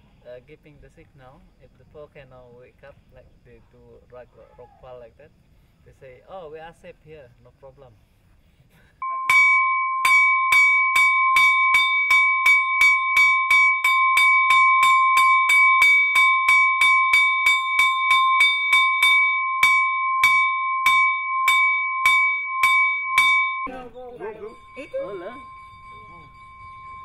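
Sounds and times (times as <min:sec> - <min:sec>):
alarm bell struck rapidly: 0:09.0 - 0:27.0.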